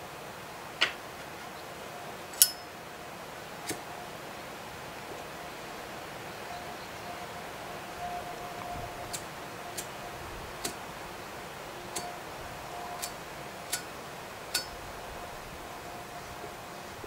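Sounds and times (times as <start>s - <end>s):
faint background hiss: 0.0s - 17.0s
pipe lighter clicks: 2.4s - 2.7s, 14.5s - 14.8s.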